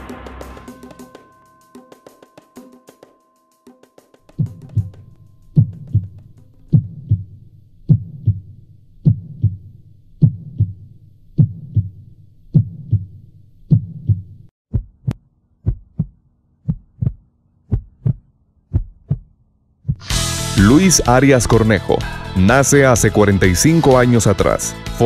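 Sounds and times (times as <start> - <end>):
heartbeat thumps: 4.3 - 20.1.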